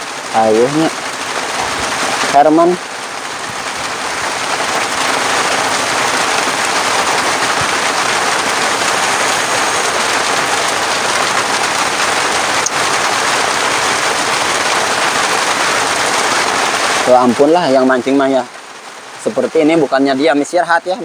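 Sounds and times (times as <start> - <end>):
loud rain falling: 0.0 - 21.0.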